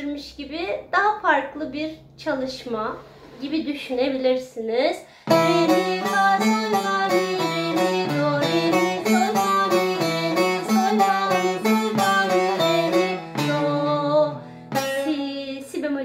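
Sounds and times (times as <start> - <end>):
plucked lute melody: 5.3 - 15.7.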